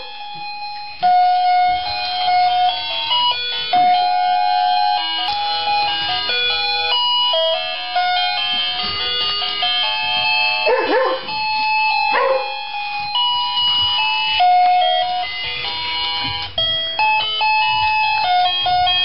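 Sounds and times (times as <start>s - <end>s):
tinkling bell-like tune: 0.0s - 19.0s
dog barking: 10.6s - 11.4s, 12.1s - 12.6s.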